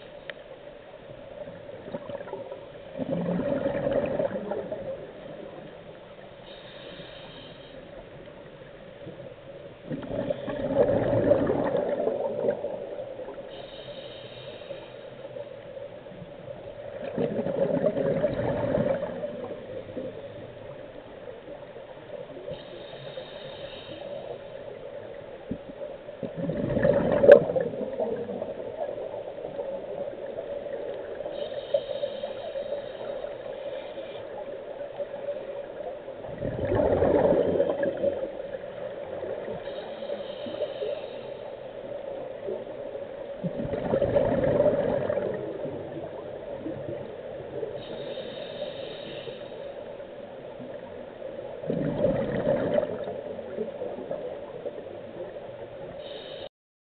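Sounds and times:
rush of exhaled bubbles: 1.8 - 5.5, 9.9 - 13.4, 16.9 - 20.1, 26.2 - 29.7, 36.2 - 38.4, 43.4 - 47.0, 51.6 - 54.2
regulator inhalation hiss: 6.3 - 8.2, 13.5 - 15.5, 22.4 - 24.9, 31.0 - 34.4, 38.6 - 41.8, 47.7 - 50.0, 56.0 - 56.5.

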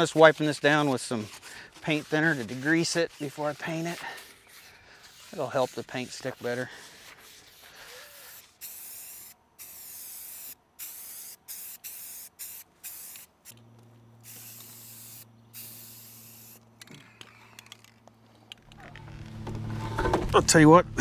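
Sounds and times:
spray paint can hissing: 6.5 - 13.6, 14.2 - 16.6.

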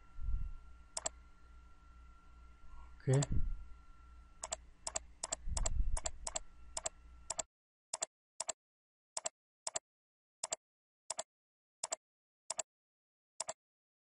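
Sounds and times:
computer mouse clicking: 1.0 - 1.2, 4.4 - 8.6, 9.2 - 9.8, 10.4 - 11.2, 11.8 - 12.6.

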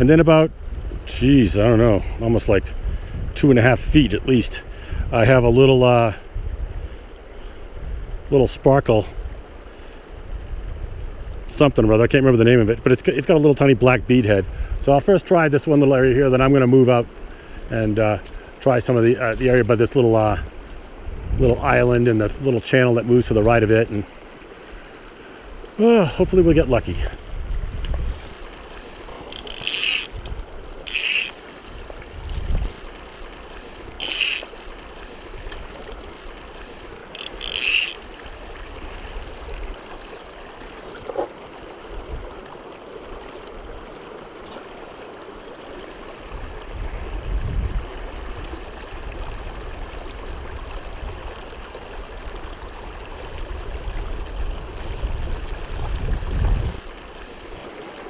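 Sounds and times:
river rushing over gravel: 14.8 - 58.0.

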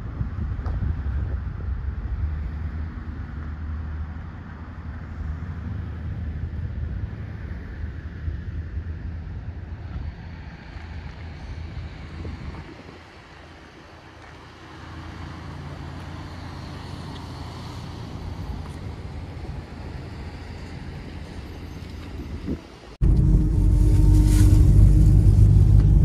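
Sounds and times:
wind on microphone: 0.0 - 3.2, 5.5 - 13.8
engine rumble: 0.0 - 26.0.

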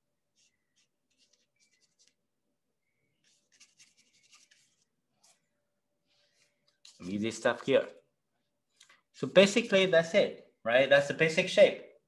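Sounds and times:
paintbrush scratching on paper: 0.2 - 2.3, 3.1 - 5.5, 6.3 - 7.9.

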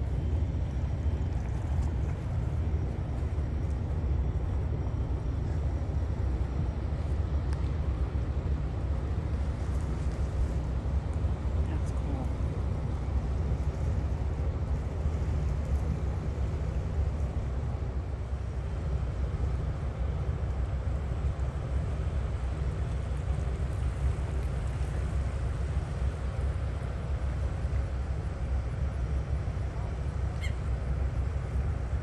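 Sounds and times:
boat engines rumbling: 0.0 - 32.0.

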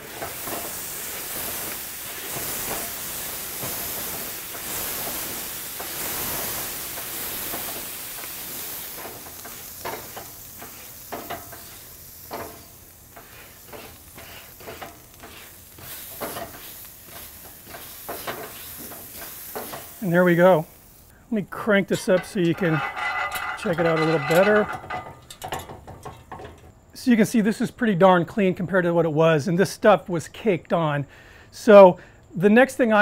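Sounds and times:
water hissing on hot grill: 0.0 - 26.6
crackles and pops: 0.2 - 21.1.

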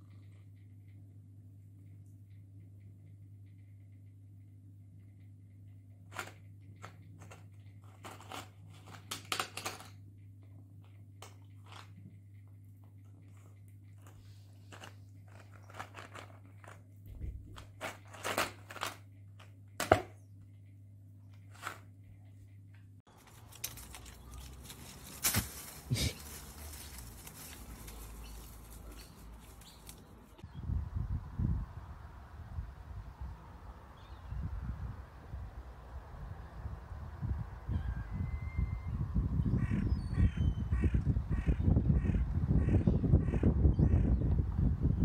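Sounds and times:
steady low hum: 0.0 - 9.0, 9.9 - 45.0
puzzle pieces scraping and rattling: 6.1 - 10.0, 14.0 - 16.9, 17.6 - 19.1.

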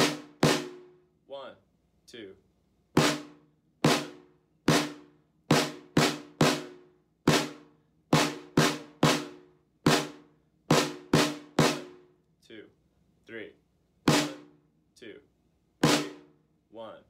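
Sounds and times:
snare drum strokes: 0.0 - 0.9, 3.0 - 12.0, 14.1 - 14.5, 15.8 - 16.3.

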